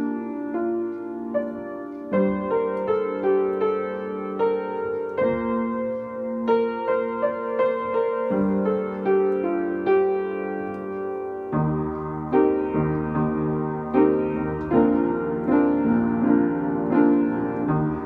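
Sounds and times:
upright piano playing slow chords: 0.0s - 18.0s.

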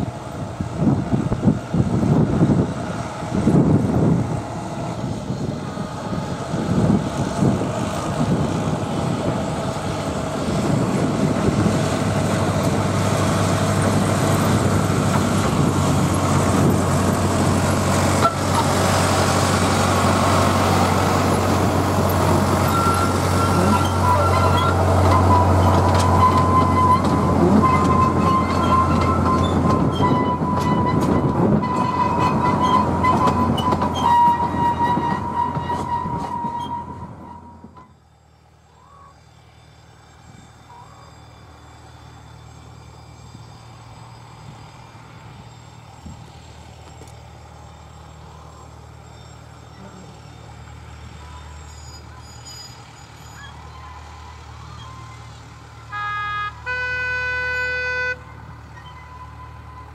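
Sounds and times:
locomotive engine drone: 0.0s - 59.9s
high squealing tone: 18.2s - 37.9s, 56.6s - 59.9s.

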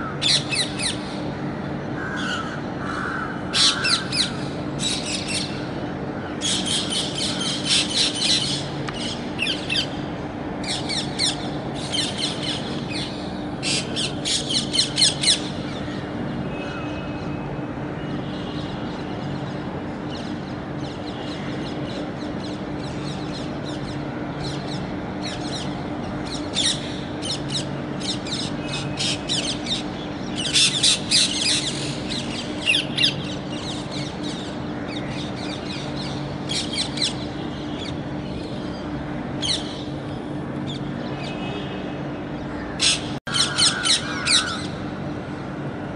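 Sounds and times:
steady low hum: 0.0s - 45.9s
parrots squawking: 42.8s - 44.7s.

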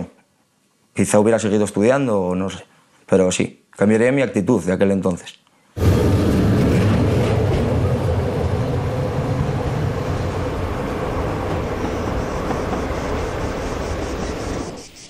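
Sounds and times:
electric train rumbling past: 5.8s - 15.0s.

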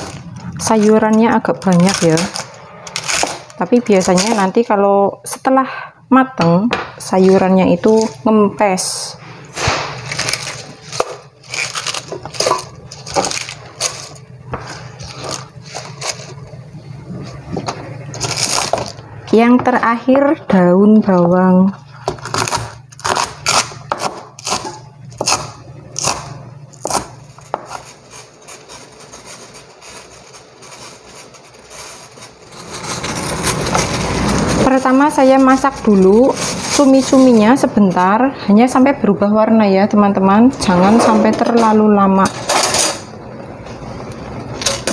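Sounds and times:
cabbage leaves rustling and crunching: 10.0s - 16.3s, 27.9s - 37.7s.

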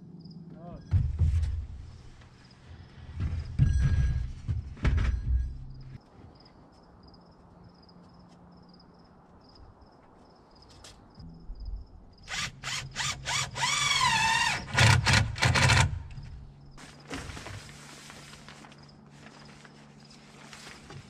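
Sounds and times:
cordless drill into wood: 12.3s - 16.0s.

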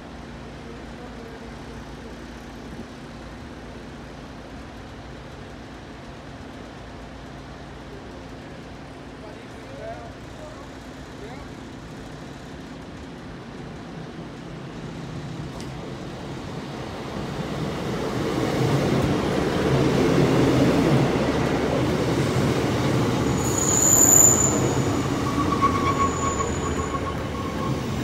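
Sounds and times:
train rumble: 0.4s - 28.0s
train brake squeal: 23.1s - 28.0s.

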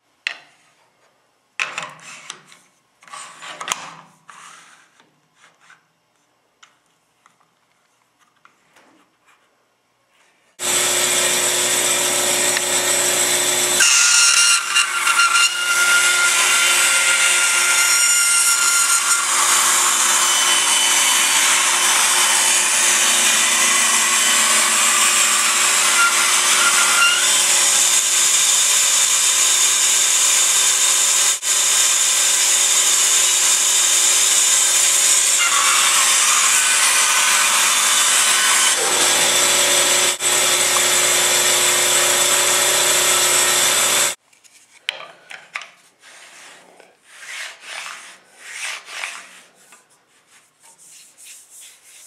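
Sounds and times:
woodworking power tool running: 10.6s - 44.2s
wood and tools being handled: 38.6s - 46.6s.

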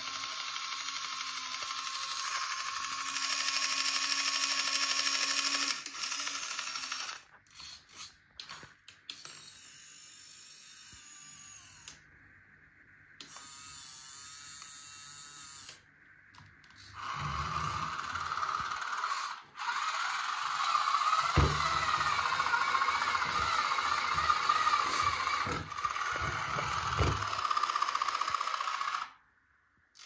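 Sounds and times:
model tractor mechanical whirring: 0.0s - 8.2s, 16.7s - 29.2s.

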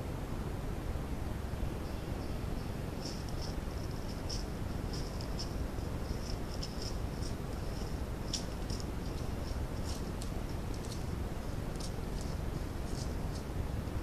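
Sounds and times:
steady hiss: 0.0s - 14.0s
high-pitched pulsing chirp: 1.6s - 11.0s.

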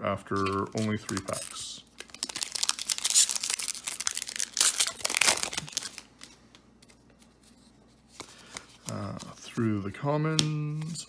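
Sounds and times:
foil wrapper tearing and crinkling: 0.3s - 6.3s.

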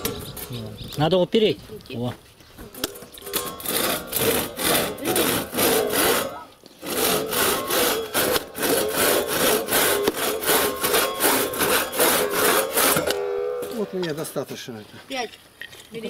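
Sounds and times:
hand saw rasping through wood: 3.3s - 13.8s.

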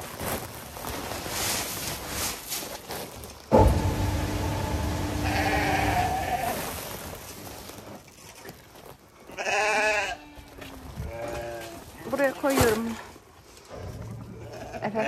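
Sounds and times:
sheep bleating: 5.2s - 6.6s, 9.3s - 10.5s, 14.4s - 15.0s.

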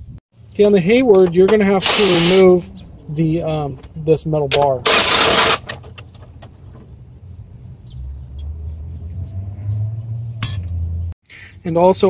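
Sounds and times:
power driver spinning: 1.5s - 2.5s, 4.8s - 6.4s.

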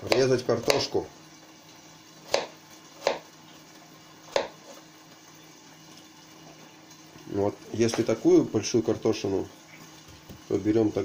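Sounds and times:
knife cutting potato: 0.0s - 1.0s, 2.2s - 3.3s, 4.3s - 4.8s.

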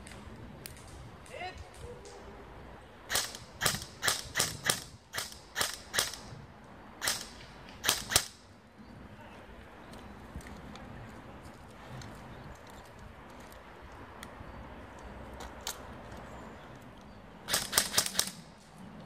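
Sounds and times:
airsoft gun shots snapping: 3.1s - 6.3s, 7.0s - 8.4s, 17.5s - 18.4s.

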